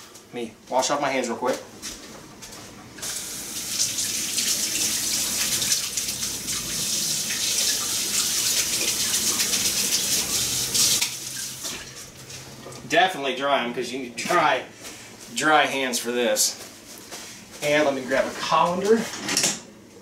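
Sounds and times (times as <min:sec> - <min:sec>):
faucet running: 0:03.0 - 0:12.2.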